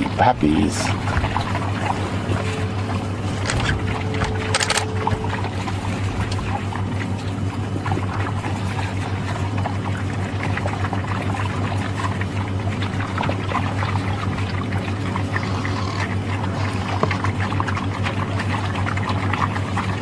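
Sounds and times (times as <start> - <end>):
dogs lapping and splashing water: 0.0 - 20.0
steady low hum: 0.0 - 20.0.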